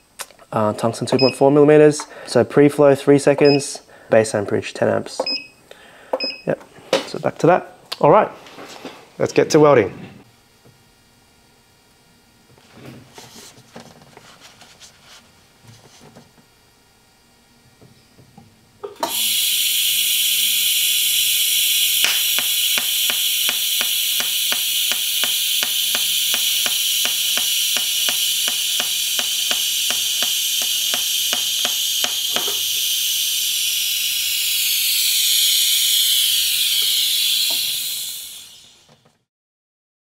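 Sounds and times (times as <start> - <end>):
welding arc hissing: 19.0 - 38.9
sharp ticks: 22.0 - 32.5.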